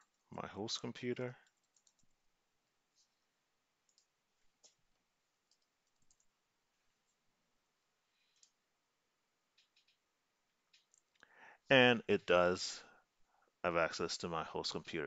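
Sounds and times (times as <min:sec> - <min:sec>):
computer keyboard keystrokes: 0:01.4 - 0:02.1, 0:05.5 - 0:06.3, 0:09.6 - 0:10.0.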